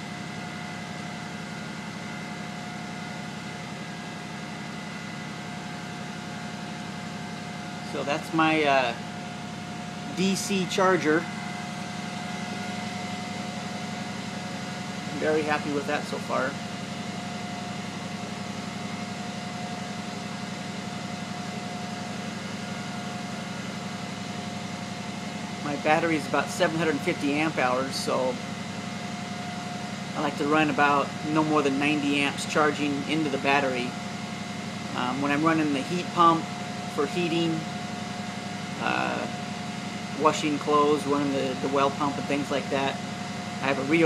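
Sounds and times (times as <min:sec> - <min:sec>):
alternator whining: 0:00.0 - 0:44.0
diesel engine running steadily: 0:00.0 - 0:44.0
diesel engine droning: 0:07.8 - 0:19.0.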